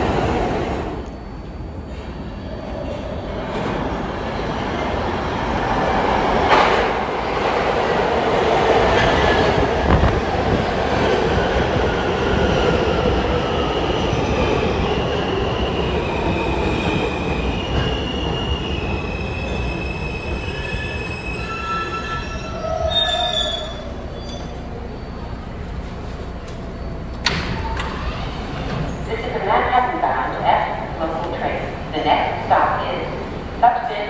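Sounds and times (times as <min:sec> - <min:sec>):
brake and wheel squeals: 0:19.4 - 0:29.1.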